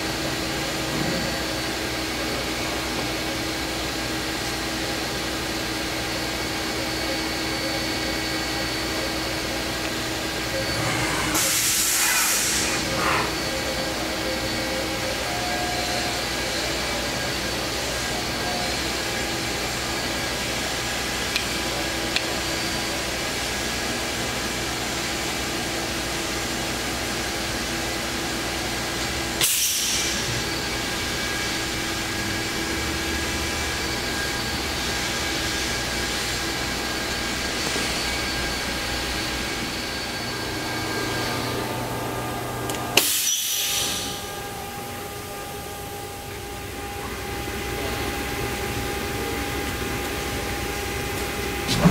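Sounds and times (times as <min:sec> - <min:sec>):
machine humming: 0:00.0 - 0:51.9
brief air hiss: 0:10.8 - 0:12.8, 0:29.4 - 0:30.2, 0:43.0 - 0:44.2.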